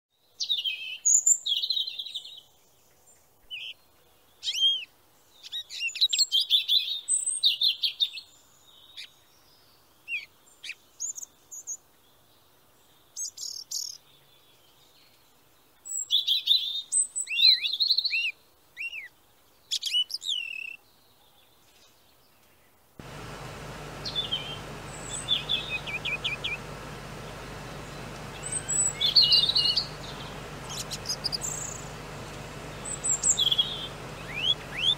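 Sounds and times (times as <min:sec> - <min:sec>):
birds chirping: 0:23.0 - 0:34.9.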